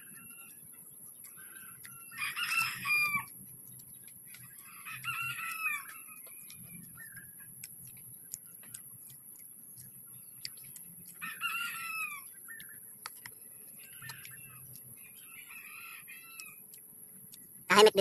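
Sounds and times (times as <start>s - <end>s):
crisp chewing clicks: 0.0s - 18.0s
rooster crowing: 2.0s - 3.3s, 4.6s - 6.1s, 11.2s - 12.3s, 15.3s - 16.6s.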